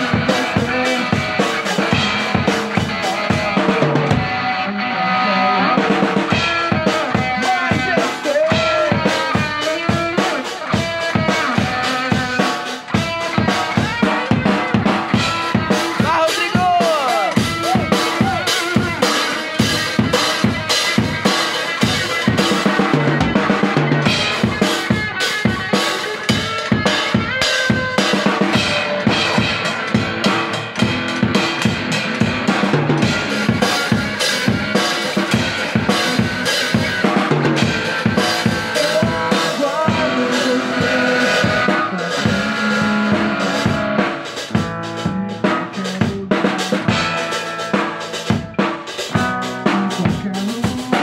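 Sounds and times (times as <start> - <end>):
drum kit playing a beat: 0.0 - 4.7, 5.6 - 51.0.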